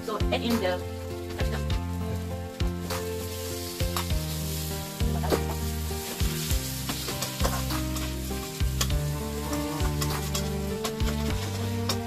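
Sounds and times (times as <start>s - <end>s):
food sizzling in a wok: 0.0s - 12.0s
spatula scraping a pan: 5.0s - 12.0s.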